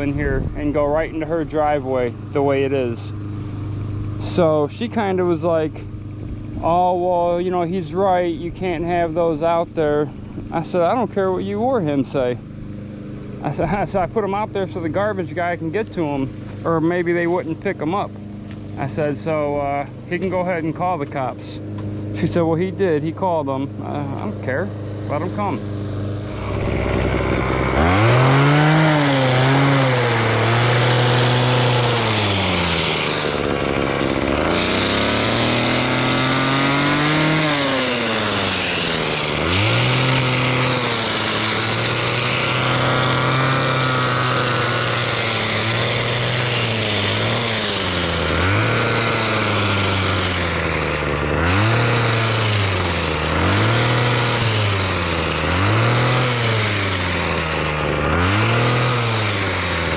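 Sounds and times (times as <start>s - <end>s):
small gas engine revving: 0.0s - 59.9s.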